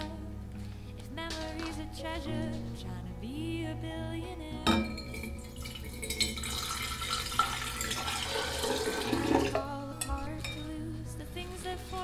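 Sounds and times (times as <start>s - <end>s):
glass clink: 4.7s - 8.1s
water pouring into glass vase: 5.1s - 9.7s.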